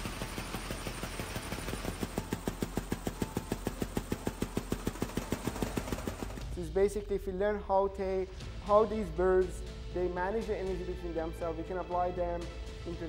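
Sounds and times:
fast mechanical ticking: 0.0s - 6.6s
steady hum: 0.0s - 6.8s.

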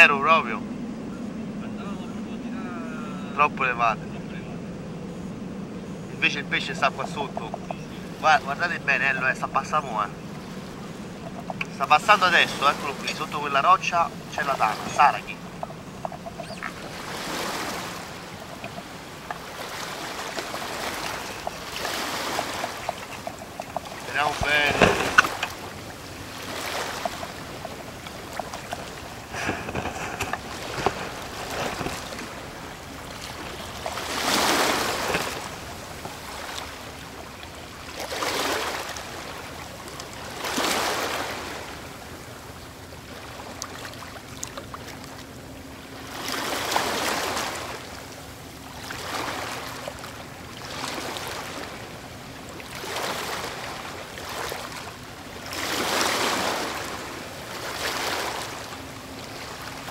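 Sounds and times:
sea water lapping and splashing: 0.0s - 59.9s.

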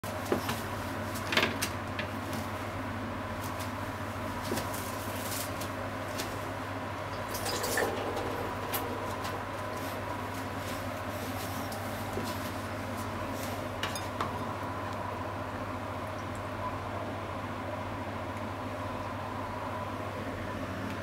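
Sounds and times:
steady low hum: 1.8s - 21.0s
faint high tone: 7.7s - 10.2s.

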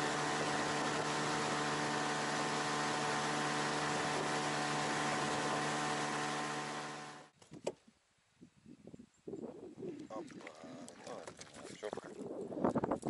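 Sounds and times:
outboard motor droning: 0.0s - 7.3s.

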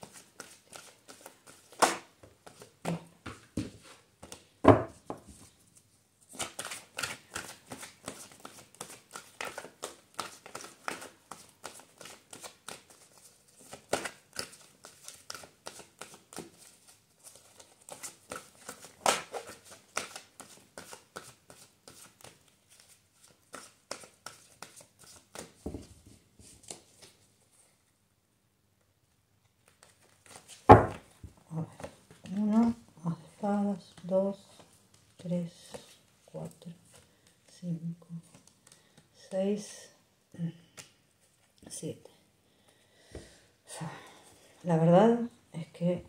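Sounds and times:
cards being shuffled: 0.0s - 4.4s, 6.3s - 27.2s, 29.6s - 32.8s.

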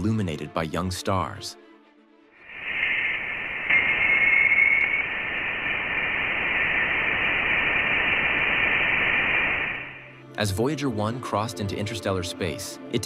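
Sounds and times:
static-like hiss: 2.4s - 10.1s
thin whistle-like tone: 2.5s - 10.1s.

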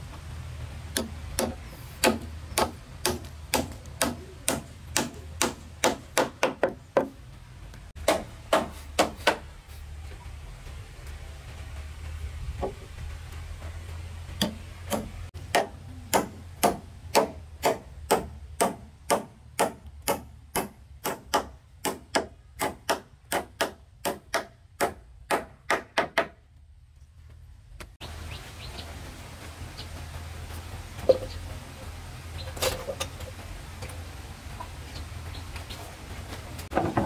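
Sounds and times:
hand tool striking wood: 0.9s - 7.2s, 8.0s - 9.5s, 14.4s - 26.4s.

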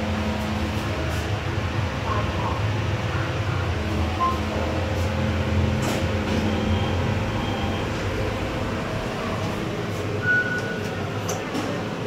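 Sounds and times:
lift humming: 0.0s - 12.0s
short beep: 6.4s - 8.0s, 10.2s - 10.9s.

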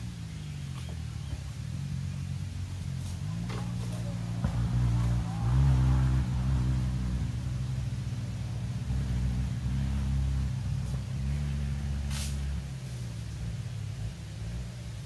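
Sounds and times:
engine running at low revs: 0.0s - 15.0s.

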